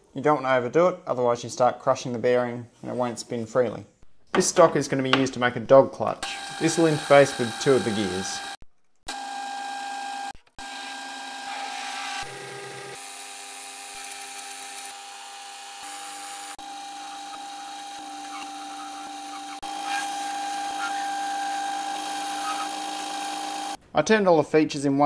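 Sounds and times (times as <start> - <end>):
lathe cutting metal: 6.2 - 8.6, 9.2 - 23.8
metal lathe whine: 6.3 - 12.3, 13.0 - 23.8.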